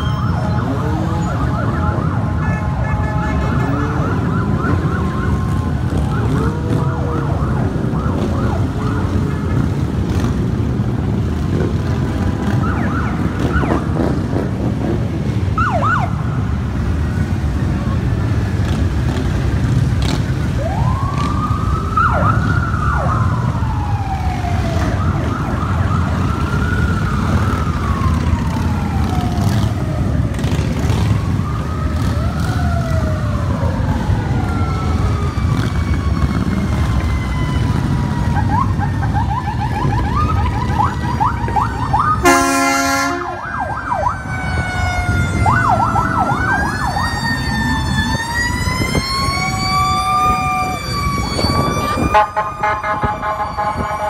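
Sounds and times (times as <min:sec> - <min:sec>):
emergency sirens wailing: 0:00.0 - 0:54.0
motorcycle and vehicle engines: 0:00.0 - 0:54.0
horn blast: 0:42.2 - 0:43.4.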